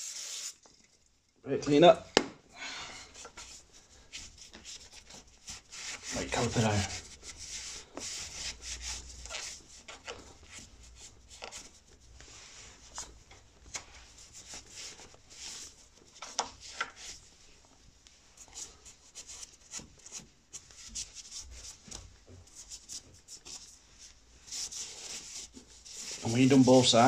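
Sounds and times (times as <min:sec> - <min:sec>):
cloth wiping metal: 0:03.4 - 0:09.8, 0:23.4 - 0:27.0.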